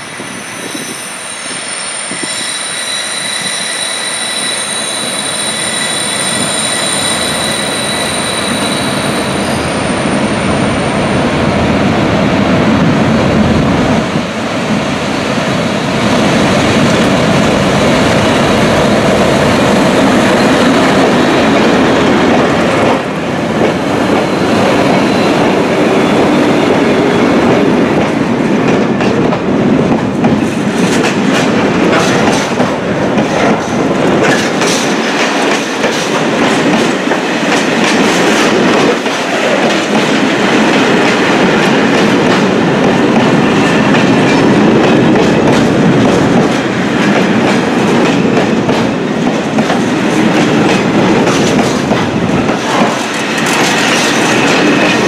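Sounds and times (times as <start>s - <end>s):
diesel locomotives passing: 0.0s - 55.0s
train wheels clicking over rail joints: 18.4s - 55.0s.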